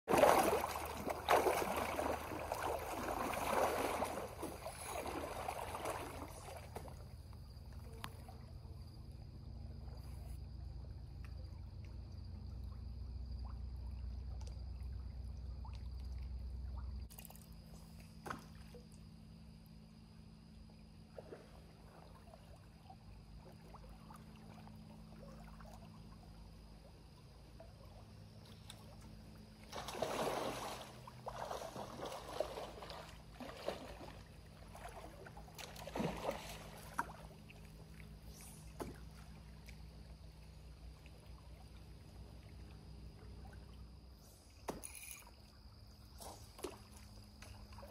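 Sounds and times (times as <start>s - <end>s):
water sloshing around waders: 0.0s - 9.0s, 20.5s - 47.9s
light water splashes: 0.0s - 47.9s
faint river wash: 0.1s - 47.9s.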